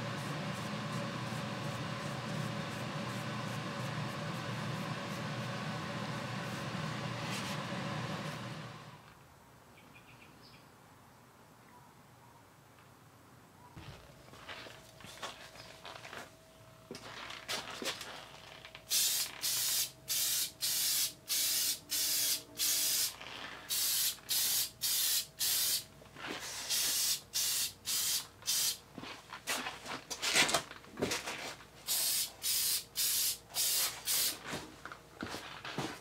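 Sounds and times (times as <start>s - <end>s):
aerosol spray can hissing: 18.9s - 25.8s, 26.6s - 28.8s, 31.9s - 34.4s.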